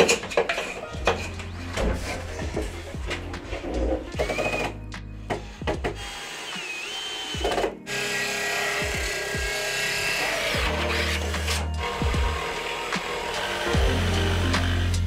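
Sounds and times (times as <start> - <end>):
cordless drill whirring: 5.4 - 14.8.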